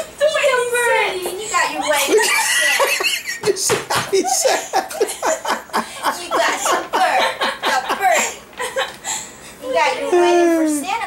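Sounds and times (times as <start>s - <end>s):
people laughing: 1.8s - 9.2s.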